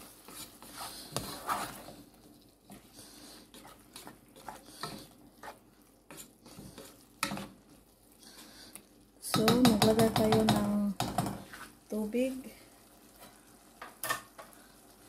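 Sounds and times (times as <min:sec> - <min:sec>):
spatula scraping a pan: 0:00.0 - 0:08.7, 0:11.1 - 0:11.8, 0:13.1 - 0:14.6.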